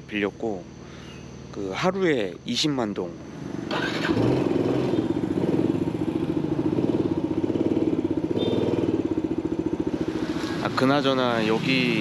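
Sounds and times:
motorcycle engine running: 0:03.3 - 0:12.0.

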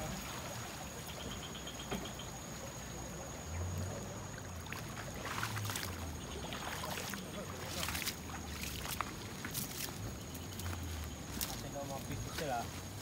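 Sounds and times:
river water running over stones: 0:00.0 - 0:13.0.

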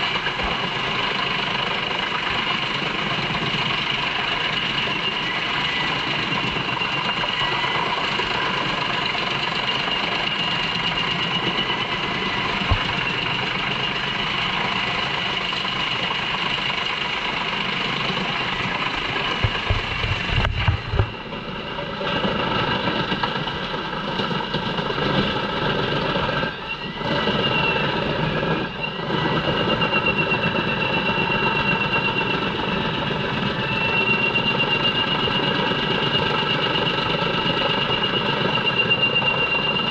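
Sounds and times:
high machine whine: 0:00.0 - 0:39.9.

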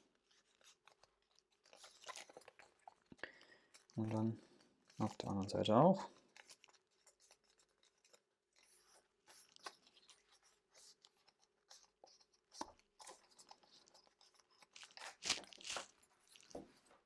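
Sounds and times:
cardstock rustling and scraping: 0:03.8 - 0:17.0.

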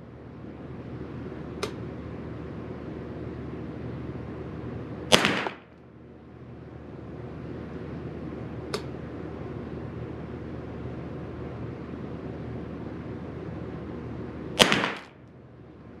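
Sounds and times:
rifle shot with echo: 0:05.1 - 0:05.8, 0:14.6 - 0:15.2.

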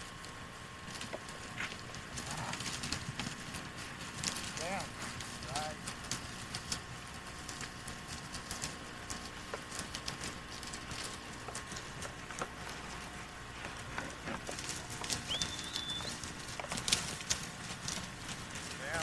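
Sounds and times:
brush rustling: 0:00.0 - 0:19.0
rising whistle: 0:15.3 - 0:16.2.

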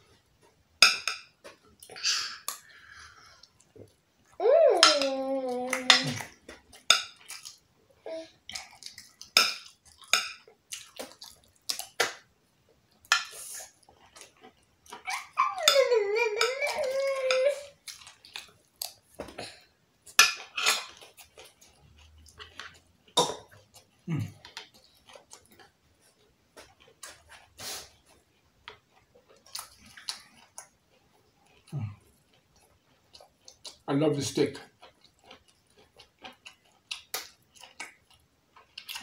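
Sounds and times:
toddler high-pitched vocal sound: 0:04.4 - 0:06.3, 0:08.0 - 0:08.4, 0:15.0 - 0:17.8.

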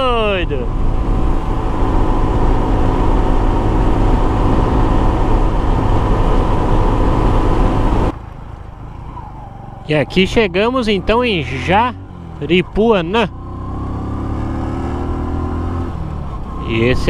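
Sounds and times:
wind rush on microphone: 0:00.0 - 0:08.1
motorcycle engine cruising: 0:00.0 - 0:17.0.

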